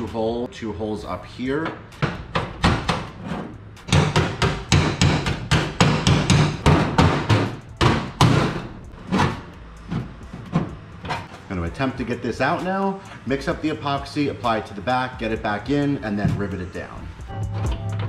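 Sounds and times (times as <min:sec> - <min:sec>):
hammer striking metal: 0:01.5 - 0:03.2, 0:03.8 - 0:11.3.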